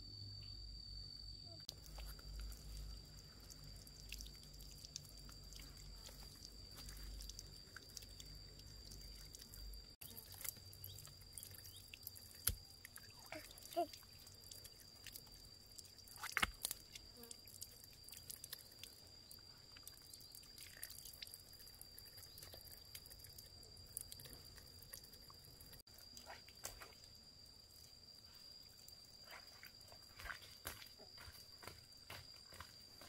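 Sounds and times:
small splashes and taps: 10.2s - 15.2s, 16.1s - 17.0s
footsteps on stony ground: 30.0s - 33.0s.

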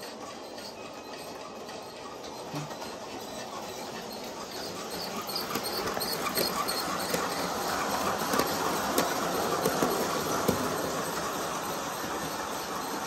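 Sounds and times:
model train wheels rattling on track: 0.0s - 13.0s
wheels knocking over rail joints: 4.6s - 12.4s.

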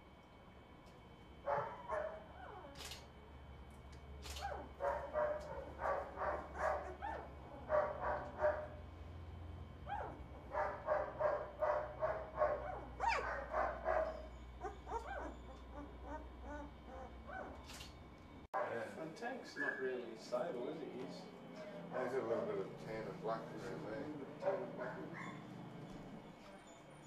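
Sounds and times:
puppies squeaking and whining: 14.0s - 17.8s, 25.1s - 27.0s.

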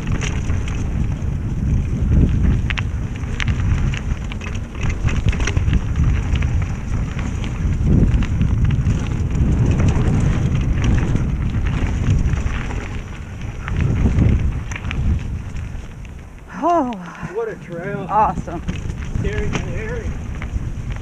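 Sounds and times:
bike clicks and rattles: 0.0s - 21.0s
tyres rolling over dirt and stones: 0.0s - 21.0s
wind buffeting microphone: 0.0s - 21.0s.

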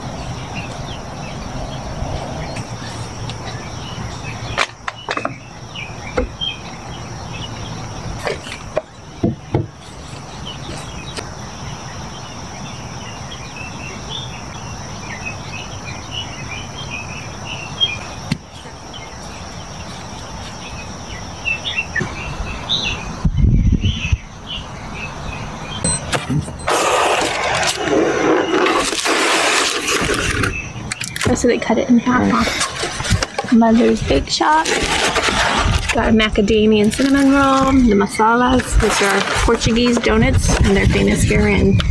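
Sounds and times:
bird chirps: 0.0s - 27.2s.

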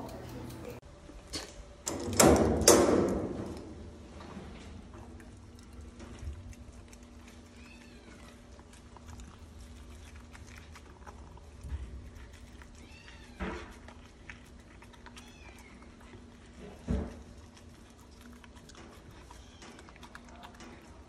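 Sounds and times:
puppy eating from metal bowl: 4.7s - 21.0s
high-pitched animal cries: 15.0s - 16.0s.

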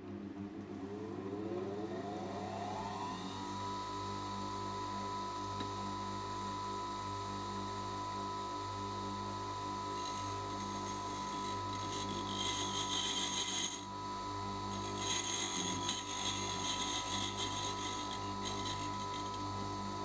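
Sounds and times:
bench grinder humming: 1.5s - 20.0s.

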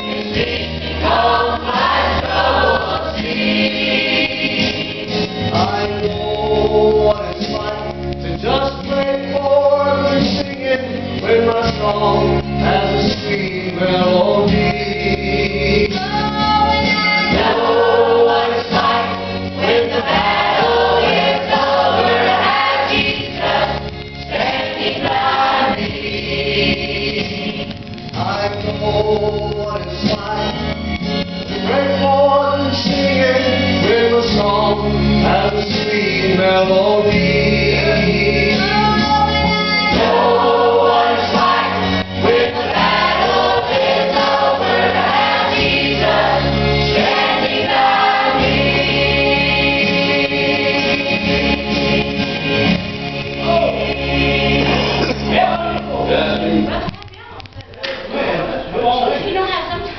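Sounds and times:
choir singing gospel song: 0.0s - 7.8s, 8.4s - 28.8s, 31.6s - 56.8s
instrumental accompaniment with bass: 0.0s - 59.7s
man singing lead: 5.5s - 16.3s, 31.6s - 39.1s.

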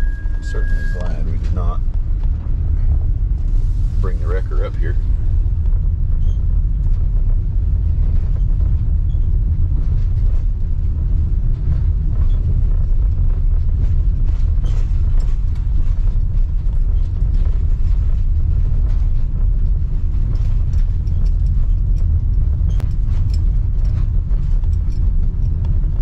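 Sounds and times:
light rattles: 0.0s - 26.0s
vehicle engine and road noise: 0.0s - 26.0s.

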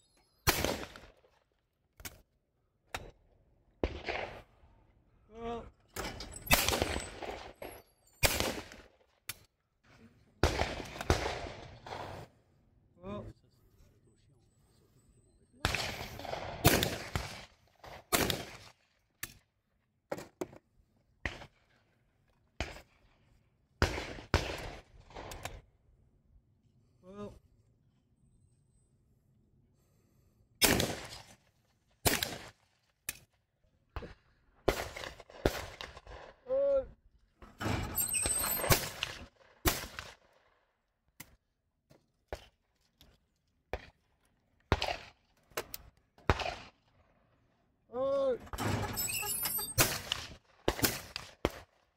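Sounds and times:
shotgun shots: 0.5s - 1.1s, 3.8s - 4.5s, 6.5s - 7.6s, 8.2s - 8.9s, 10.4s - 12.3s, 15.6s - 18.7s, 30.6s - 31.3s, 46.3s - 46.7s, 48.5s - 51.7s.

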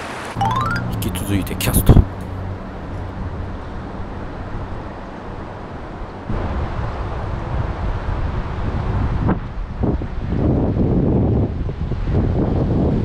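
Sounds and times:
wind buffeting microphone: 4.4s - 13.0s.

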